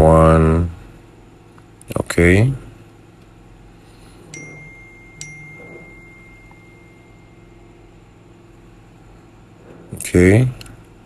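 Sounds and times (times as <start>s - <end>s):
bell-like chime tones: 4.3s - 7.9s.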